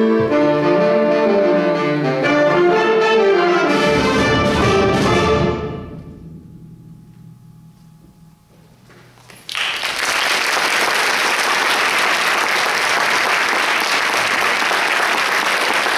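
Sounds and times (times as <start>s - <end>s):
audience applause: 9.4s - 15.9s.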